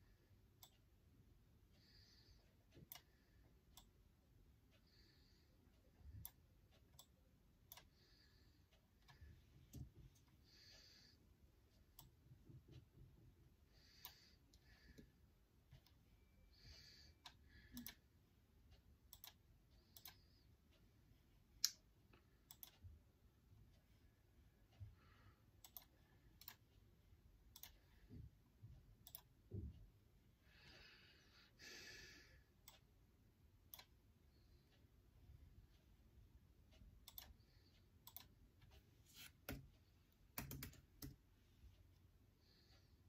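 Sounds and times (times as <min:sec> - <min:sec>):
laptop keys and trackpad clicking: 0:40.3 - 0:41.2.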